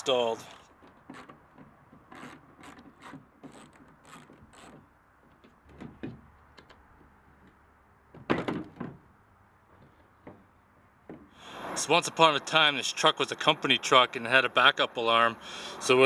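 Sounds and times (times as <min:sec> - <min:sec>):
light plastic clicks and knocks: 0:00.8 - 0:09.0.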